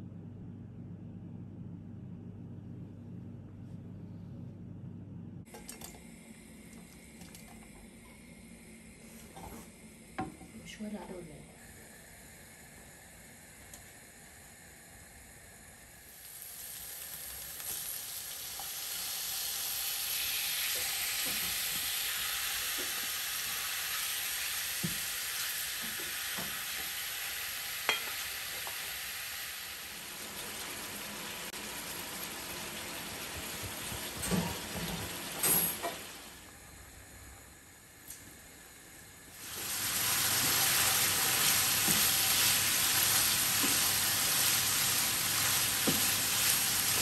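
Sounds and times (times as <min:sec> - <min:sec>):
beef sizzling in a hot pan: 0:15.9 - 0:34.0, 0:39.4 - 0:47.0.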